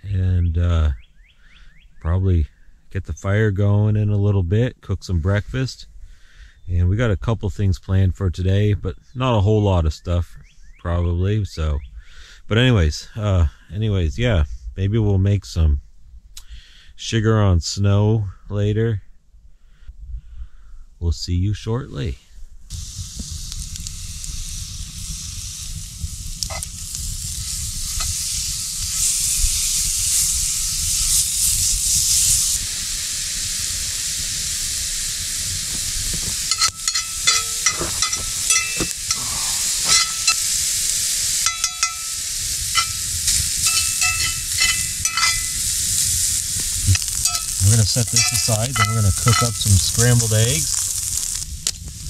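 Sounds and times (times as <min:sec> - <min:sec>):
meat sizzling in a skillet: 0:22.7 - 0:52.0
metal utensil scraping a pan: 0:36.5 - 0:40.5, 0:41.4 - 0:50.8.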